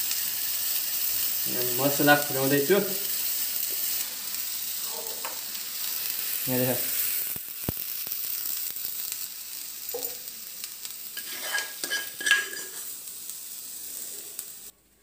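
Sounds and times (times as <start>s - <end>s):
hot oil sizzling: 0.0s - 14.8s
metal pan scraping and tapping: 11.2s - 12.9s.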